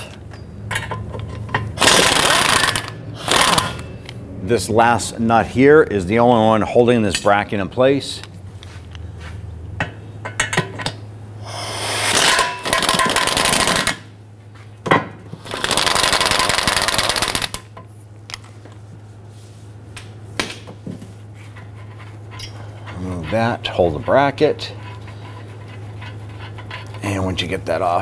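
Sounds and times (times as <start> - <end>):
power wrench rattling: 0.7 - 3.9, 12.1 - 14.0, 15.4 - 17.7.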